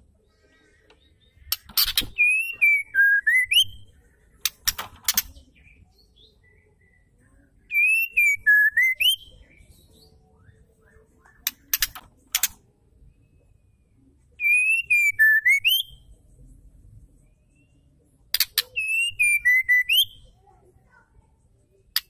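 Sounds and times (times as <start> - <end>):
sharp clicks: 0.9 - 2.2, 4.4 - 5.4, 11.4 - 12.6
bird whistling phrase: 2.1 - 3.8, 7.7 - 9.4, 14.4 - 15.9, 18.7 - 20.3.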